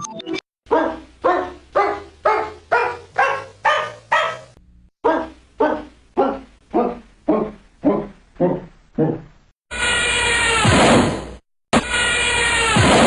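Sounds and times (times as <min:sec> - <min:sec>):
dog barking: 0:00.7 - 0:09.2
music: 0:11.8 - 0:13.0.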